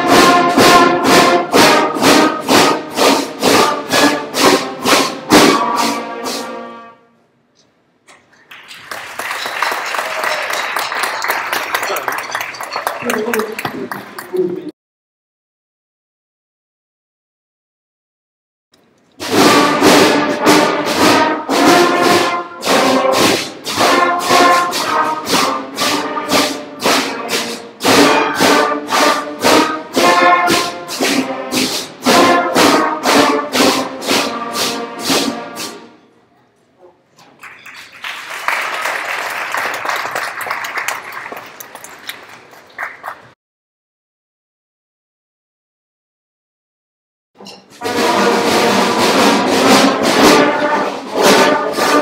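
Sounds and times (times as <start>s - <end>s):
concert band playing a simple tune: 0.0s - 7.0s, 19.2s - 36.0s, 47.8s - 52.0s
audience applauding: 8.3s - 14.7s, 37.2s - 43.4s.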